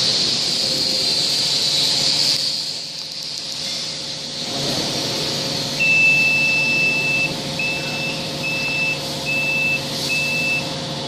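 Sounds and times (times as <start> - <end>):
machine humming: 2.9 - 11.0
control panel buzzer beeping: 5.8 - 10.7.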